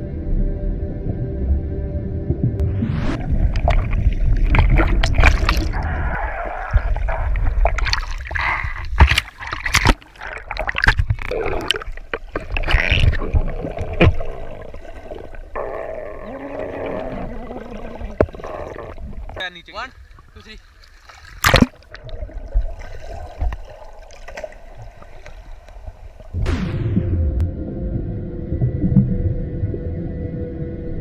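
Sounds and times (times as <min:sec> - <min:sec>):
muffled low rumble: 0:00.0 - 0:07.9, 0:26.3 - 0:31.0
water sloshing and gurgling: 0:02.2 - 0:30.0.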